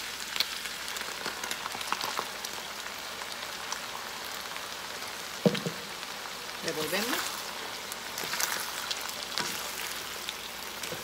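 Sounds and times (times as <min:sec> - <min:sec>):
food sizzling in a skillet: 0:00.0 - 0:11.0.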